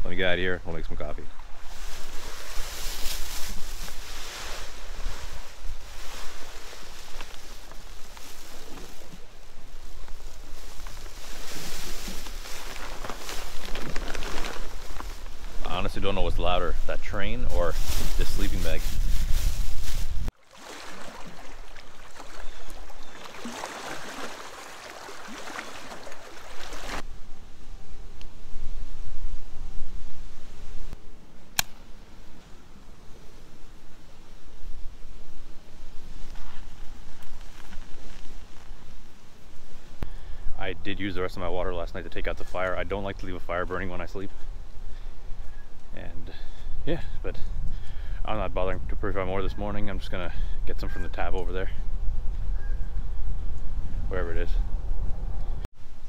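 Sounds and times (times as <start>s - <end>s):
wind rumble on microphone: 1.4s - 20.3s, 44.4s - 56.0s
foil sleeping bag crinkling: 1.6s - 16.0s, 17.5s - 20.8s, 22.0s - 27.0s, 36.2s - 39.1s
mylar bag crinkling: 11.8s - 15.3s.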